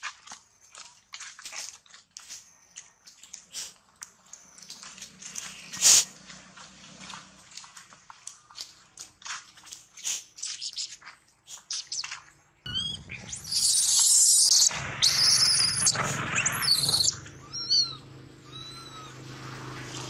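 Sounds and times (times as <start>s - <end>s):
monkey squeaks: 10.0s - 11.0s, 11.6s - 12.1s, 12.7s - 19.2s
monkeys screaming: 12.7s - 19.4s.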